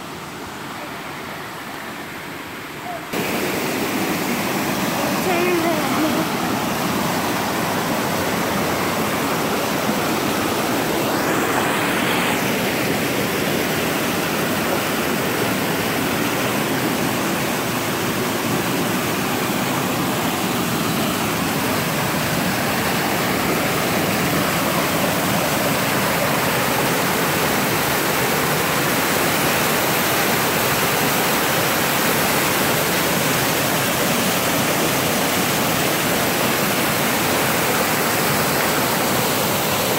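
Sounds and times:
waterfall rushing over rock: 0:00.0 - 0:39.9.

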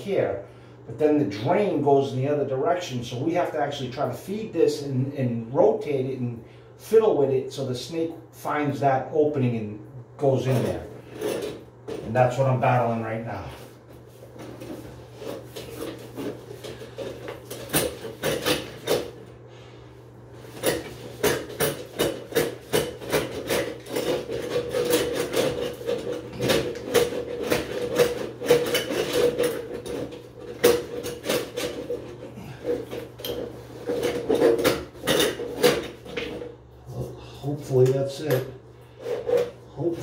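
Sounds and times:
drain snake cable rattling and scraping: 0:10.4 - 0:12.8, 0:13.5 - 0:19.2, 0:20.4 - 0:37.1, 0:38.9 - 0:40.0.

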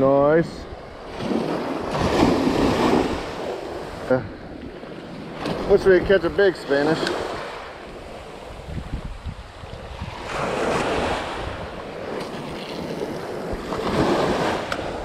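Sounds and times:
surf waves breaking on sand: 0:00.0 - 0:15.0
wind buffeting microphone: 0:00.0 - 0:15.0.

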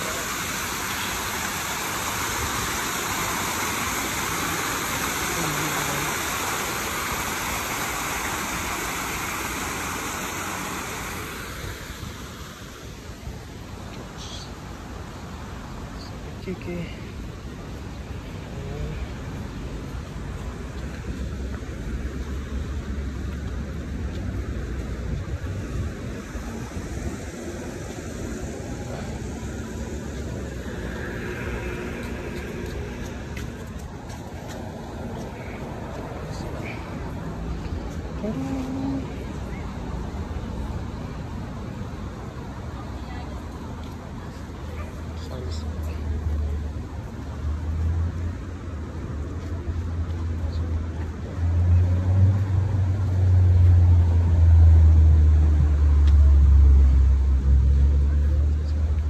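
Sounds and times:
hiss: 0:00.0 - 0:12.9
waterfall splashing into pond: 0:00.0 - 0:15.8
road traffic rumble: 0:00.0 - 0:59.0.

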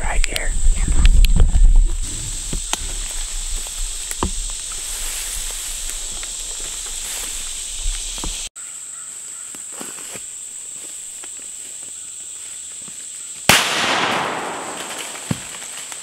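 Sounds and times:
high-pitched insect drone: 0:02.0 - 0:13.3
shotgun shot echoing: 0:13.5 - 0:15.6.

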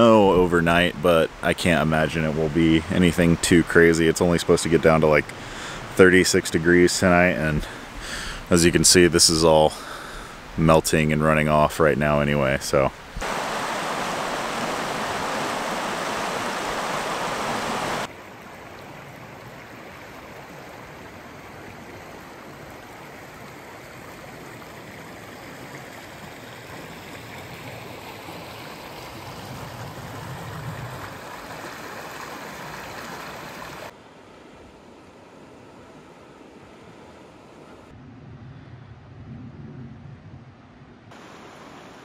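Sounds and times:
river rushing over rocks: 0:13.2 - 0:18.2.

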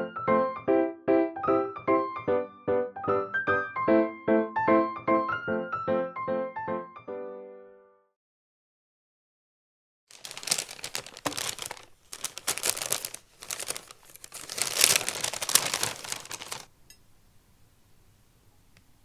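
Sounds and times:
paper bag rustling: 0:10.1 - 0:16.7.

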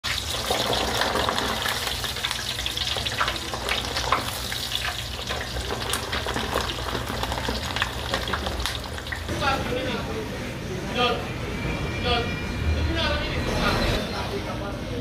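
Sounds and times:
oil bubbling and crackling: 0:00.0 - 0:09.3.

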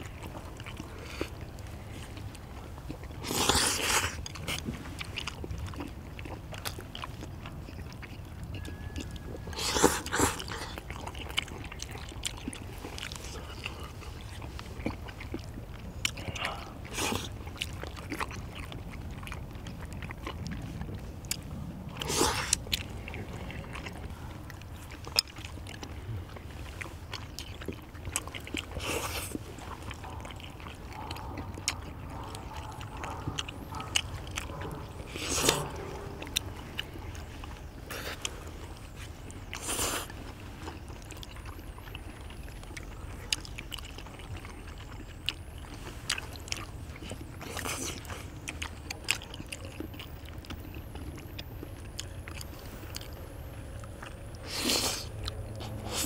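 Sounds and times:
low steady rumble: 0:00.0 - 0:56.0
slurping: 0:00.0 - 0:56.0
wet chewing: 0:00.0 - 0:56.0.

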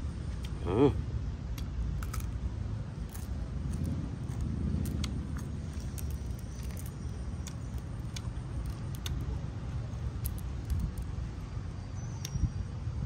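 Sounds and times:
crisp clicks and cracks: 0:01.6 - 0:02.4, 0:03.0 - 0:09.4, 0:10.0 - 0:11.2.

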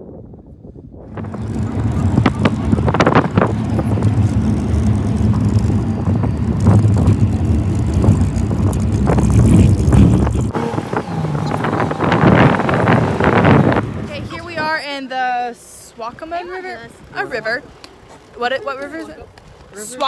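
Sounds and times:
wind on microphone: 0:00.0 - 0:15.0
vehicle engine drone: 0:00.0 - 0:20.0
vehicle rattles and knocks: 0:01.0 - 0:14.8.

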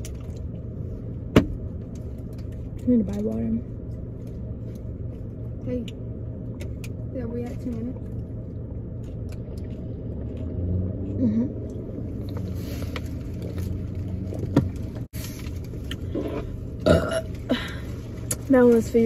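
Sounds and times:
low rumble: 0:00.0 - 0:19.0
person burping loudly: 0:16.8 - 0:17.7.

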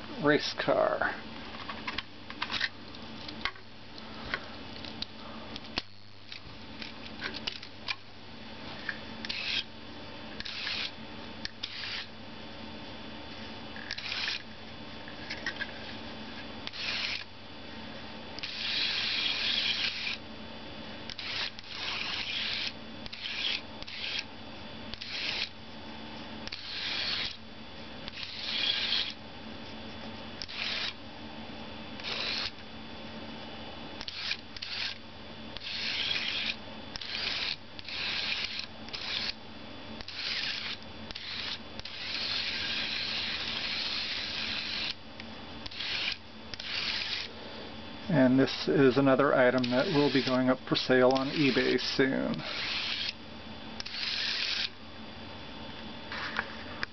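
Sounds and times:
steady low hum: 0:00.0 - 0:56.9
toy car motor whirring: 0:09.2 - 0:09.7, 0:10.4 - 0:10.9, 0:11.5 - 0:12.1, 0:13.8 - 0:14.4, 0:16.6 - 0:17.3, 0:18.4 - 0:20.2, 0:21.1 - 0:24.3, 0:24.9 - 0:25.5, 0:26.4 - 0:27.4, 0:28.1 - 0:29.2, 0:30.4 - 0:31.0, 0:32.0 - 0:32.6, 0:34.0 - 0:35.0, 0:35.6 - 0:39.4, 0:40.0 - 0:45.0, 0:45.6 - 0:47.3, 0:49.5 - 0:50.5, 0:51.1 - 0:53.2, 0:53.8 - 0:54.8.

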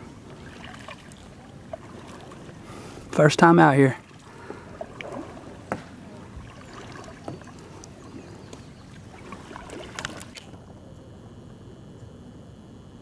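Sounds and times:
paddle dipping and splashing: 0:00.0 - 0:10.6
light knocks on kayak hull: 0:05.0 - 0:06.0.

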